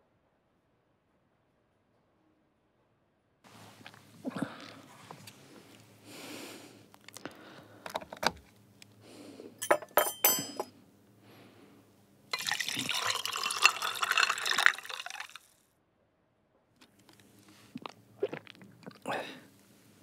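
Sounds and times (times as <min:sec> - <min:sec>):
metallic clinks of steel tumbler: 0:09.6 - 0:10.7
water running into tumbler: 0:12.4 - 0:15.5.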